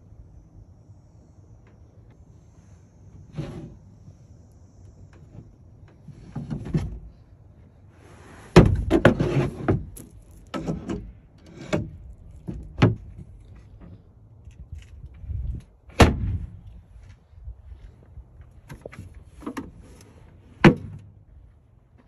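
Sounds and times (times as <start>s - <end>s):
wooden drawers knocking and thumping: 8.6s - 10.0s.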